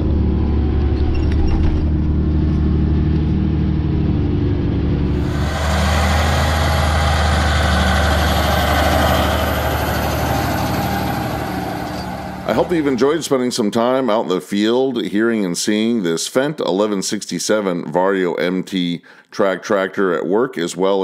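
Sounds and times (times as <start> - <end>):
tractor engine droning: 0.0 - 14.0
loud hiss: 5.1 - 12.9.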